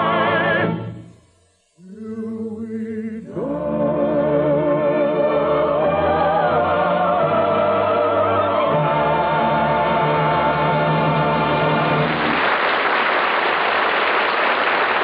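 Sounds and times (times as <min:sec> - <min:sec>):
voices singing held note: 0:02.1 - 0:12.0
orchestra: 0:03.3 - 0:15.0.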